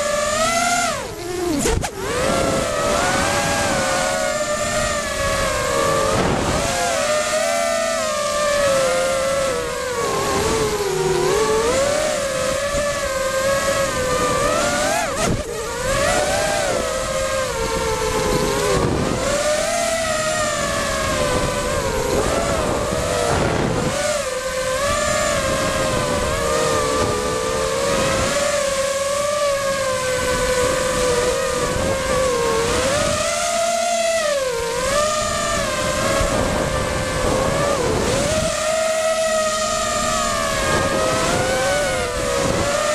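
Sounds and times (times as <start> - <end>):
quadcopter motors buzzing whine: 0.0 - 42.9.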